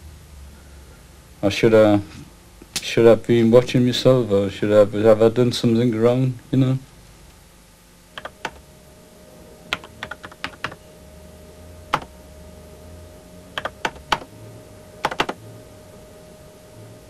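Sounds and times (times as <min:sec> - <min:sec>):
faint steady tone: 0:07.9 - 0:17.0
keyboard key clicks: 0:15.0 - 0:15.4.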